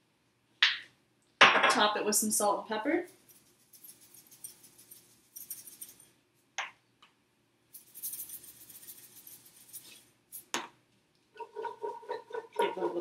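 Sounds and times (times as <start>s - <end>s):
salt shaker rattling: 3.0s - 6.2s, 7.7s - 10.5s
pepper grinder grinding: 3.2s - 6.1s, 7.8s - 10.5s.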